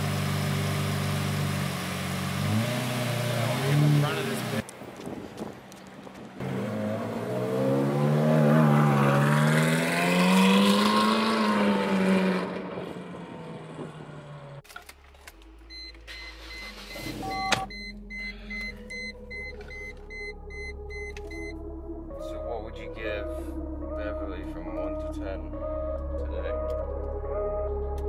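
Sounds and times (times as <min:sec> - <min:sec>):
car engine revving past: 0:06.4 - 0:14.6
electronic beeps: 0:15.7 - 0:21.6.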